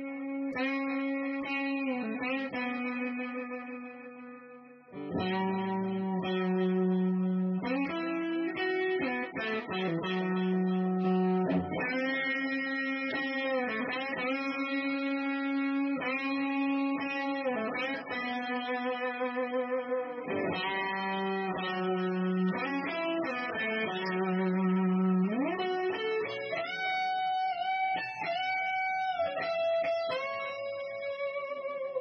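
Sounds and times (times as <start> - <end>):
electric guitar melody with echo: 0.0 - 32.0.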